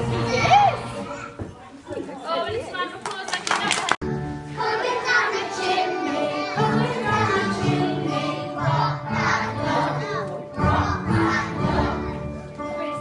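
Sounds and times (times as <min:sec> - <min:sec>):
children singing: 0:04.4 - 0:13.0.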